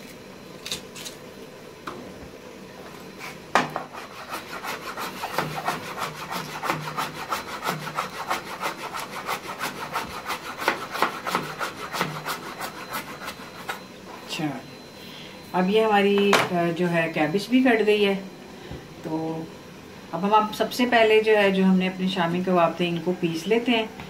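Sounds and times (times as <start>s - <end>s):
knife chopping cabbage on plastic board: 3.6s - 13.7s.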